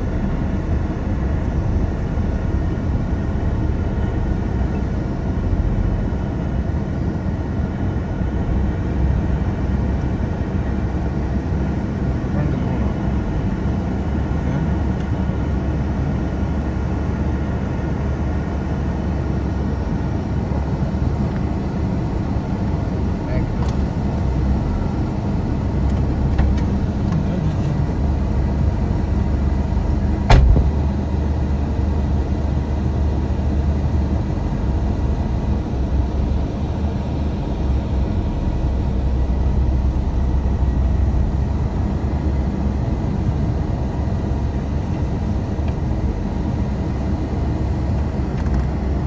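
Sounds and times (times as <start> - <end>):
vehicle engine running: 0.0 - 49.0.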